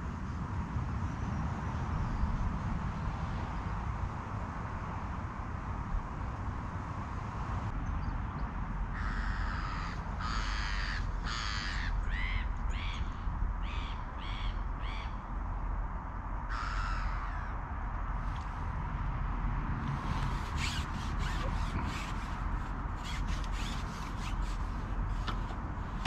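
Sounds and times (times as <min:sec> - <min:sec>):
crow cawing: 0:08.9 - 0:13.1, 0:16.5 - 0:17.6.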